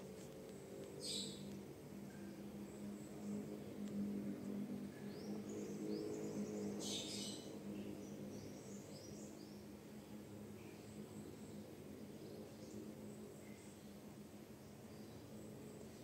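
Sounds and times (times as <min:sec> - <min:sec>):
steady low hum: 0:00.0 - 0:16.0
small birds chirping: 0:00.1 - 0:01.8, 0:02.6 - 0:14.0.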